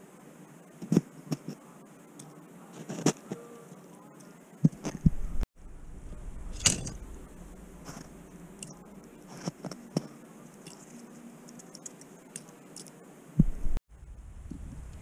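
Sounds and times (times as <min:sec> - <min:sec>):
crunching of packed snow: 0:07.6 - 0:11.2.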